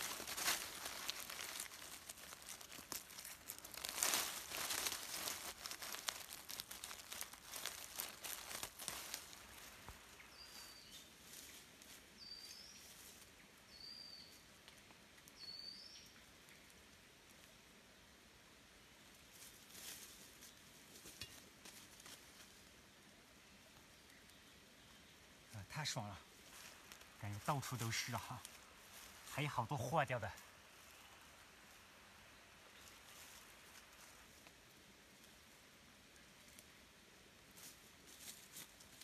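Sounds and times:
dry leaves rustling and crackling: 0.0 - 13.4, 19.3 - 22.7, 25.7 - 35.5, 37.4 - 39.0
bird chirping: 10.2 - 11.1, 13.7 - 14.4, 15.4 - 16.2.

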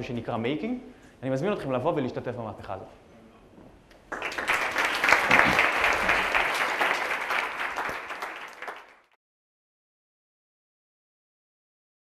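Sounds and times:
audience applauding: 4.1 - 9.2.

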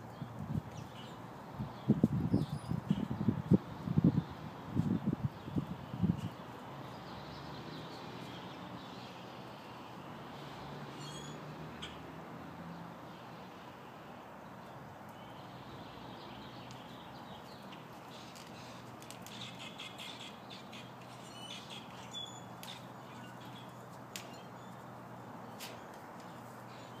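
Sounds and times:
steady outdoor hiss: 0.0 - 27.0
birds chirping: 14.5 - 27.0.

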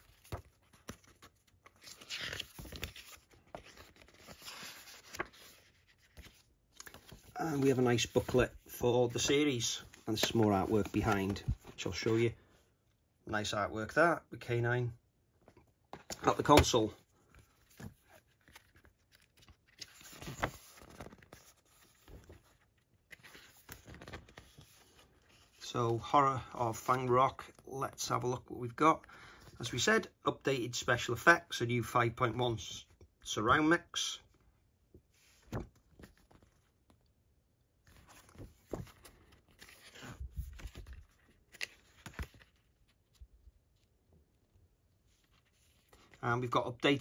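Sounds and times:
paper and cardboard rustling: 0.0 - 12.3, 15.9 - 25.7, 37.9 - 43.2.

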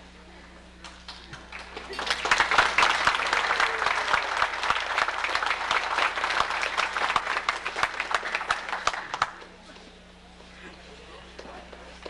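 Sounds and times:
audience applauding: 1.1 - 9.5.

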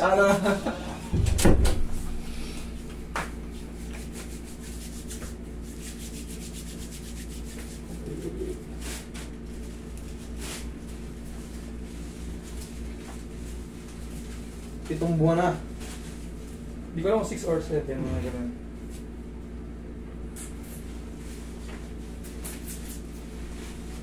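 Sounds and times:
room hum: 0.0 - 24.0
soft rustling and rubbing: 21.0 - 24.0.

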